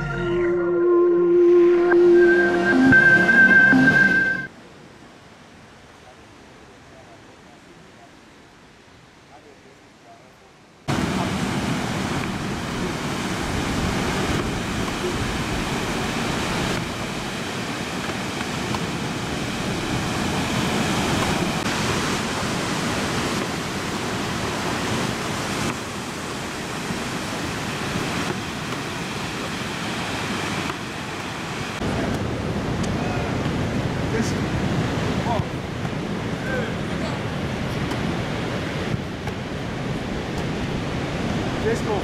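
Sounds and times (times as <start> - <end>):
ocean surf breaking: 10.9 - 42.0.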